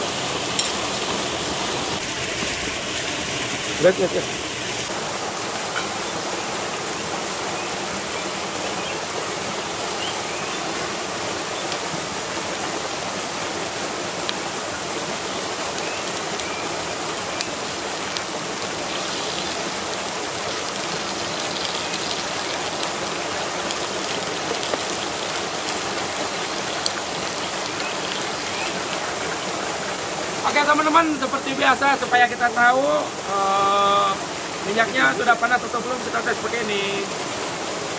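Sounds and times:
waterfall pouring into pool: 0.0s - 37.9s.

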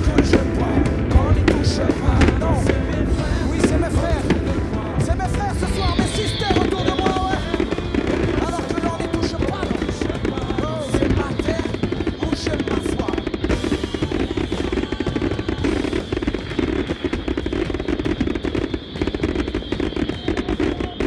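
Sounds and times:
fireworks bangs and crackles: 0.0s - 21.0s.

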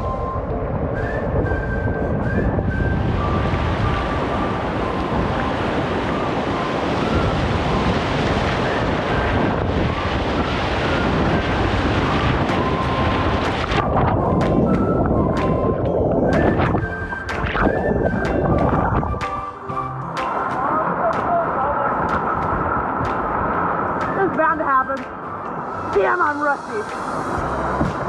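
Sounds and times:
whitewater rushing: 0.0s - 28.0s
wind buffeting microphone: 0.0s - 28.0s
water splashes and knocks: 8.6s - 19.6s, 20.2s - 26.3s, 26.9s - 28.0s.

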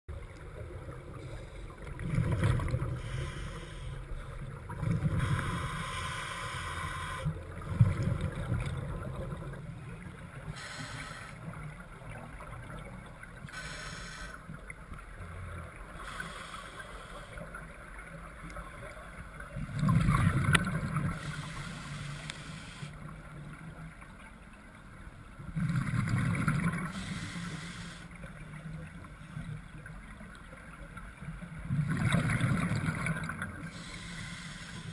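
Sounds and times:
diver bubbles gurgling underwater: 19.6s - 21.4s, 25.5s - 27.0s, 31.6s - 33.8s.

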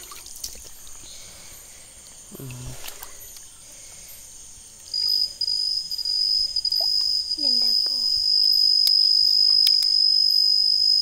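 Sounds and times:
cricket trill: 0.0s - 11.0s
high-pitched insect hum: 0.0s - 11.0s
low voice: 2.3s - 2.8s.

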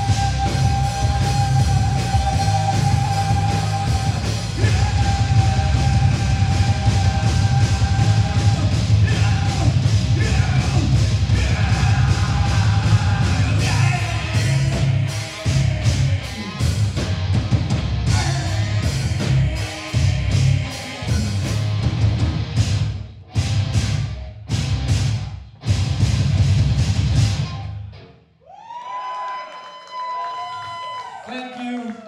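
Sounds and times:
person singing: 0.0s - 16.8s, 18.1s - 21.4s
pounding drum kit: 0.0s - 27.7s
distorted electric guitars: 0.0s - 28.2s.

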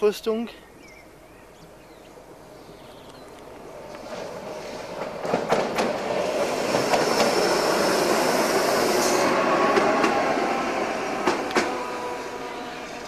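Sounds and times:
electric railcar passing: 1.0s - 13.0s.

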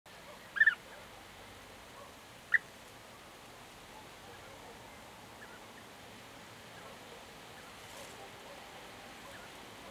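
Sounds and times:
bird calling rolling notes: 0.5s - 0.9s.

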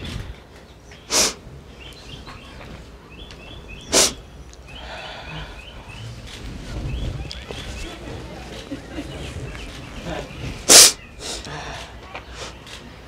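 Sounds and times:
person sniffing: 1.1s - 1.4s, 3.9s - 4.2s, 10.7s - 12.6s.

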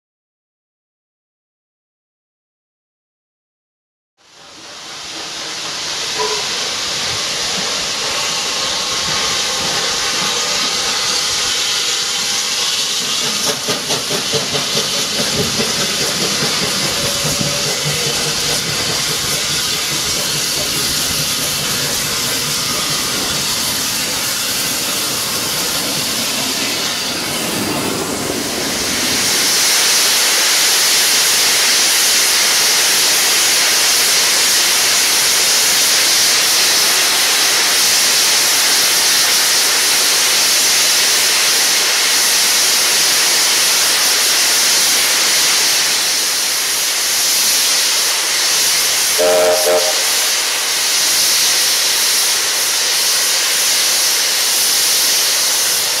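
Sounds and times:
steam hissing: 4.3s - 56.0s
engine blowing off steam: 4.5s - 56.0s
locomotive pulsing beats: 13.0s - 27.0s.

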